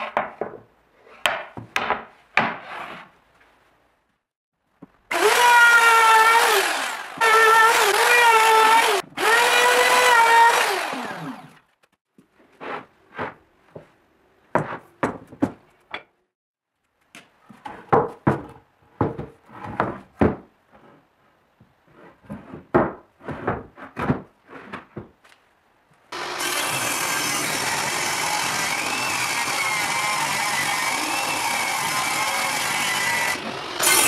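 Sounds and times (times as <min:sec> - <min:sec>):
wood knocking and scraping on wood: 0:00.0 - 0:03.6, 0:12.2 - 0:16.1, 0:17.2 - 0:25.4
power tool motor running: 0:05.1 - 0:11.6, 0:26.2 - 0:34.0.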